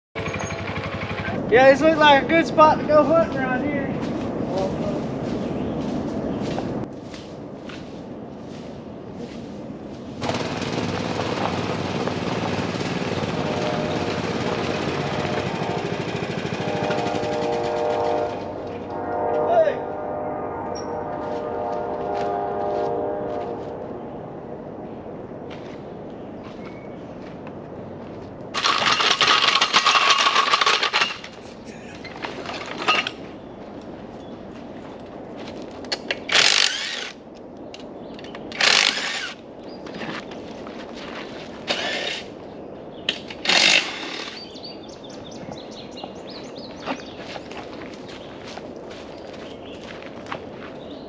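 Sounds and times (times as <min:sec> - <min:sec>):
utility vehicle engine running: 0:00.2 - 0:01.6, 0:10.2 - 0:18.5.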